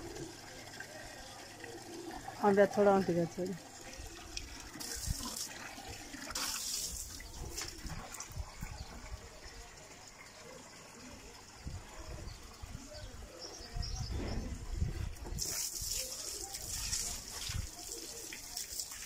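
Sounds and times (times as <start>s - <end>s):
water running from hose into bucket: 0.0s - 13.6s, 14.8s - 19.0s
water splashing: 1.6s - 9.1s, 15.3s - 19.0s.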